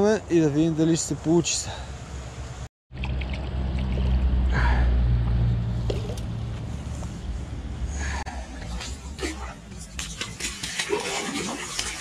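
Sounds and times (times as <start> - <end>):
fish thrashing and splashing: 2.9 - 4.4, 9.8 - 12.0
steady low rumble: 3.0 - 10.3.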